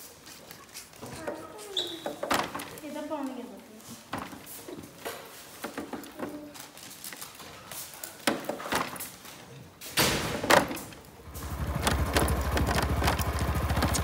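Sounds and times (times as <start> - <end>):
motorcycle engine idling: 11.2 - 14.0.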